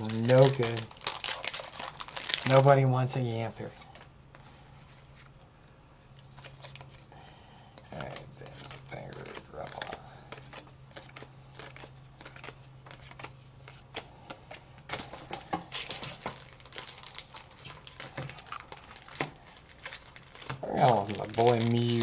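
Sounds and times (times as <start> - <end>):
cards clicking and rustling: 0.0 - 2.9, 7.8 - 22.0
foil wrapper crinkling: 0.0 - 4.0, 7.8 - 22.0.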